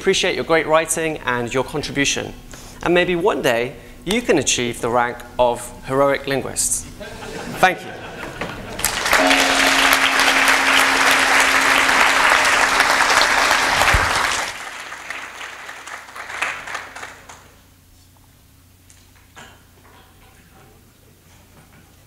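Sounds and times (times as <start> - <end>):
audience applauding: 8.8 - 17.4.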